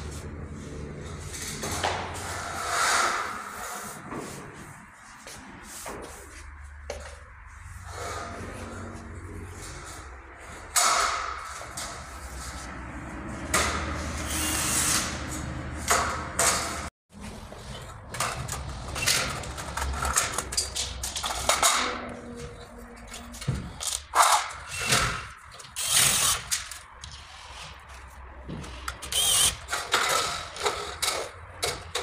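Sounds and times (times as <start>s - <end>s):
cordless drill driving screws: 25.8s - 26.6s, 29.0s - 29.8s
metal studs clicking and scraping: 28.6s - 32.0s.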